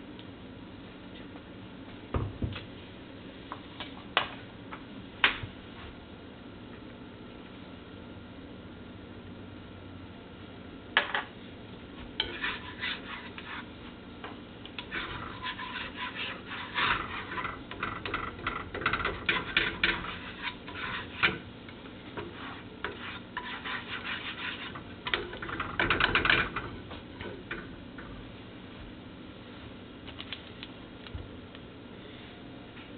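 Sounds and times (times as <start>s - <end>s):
utensil scraping a cooking pot: 12.2s - 13.9s, 14.8s - 27.6s.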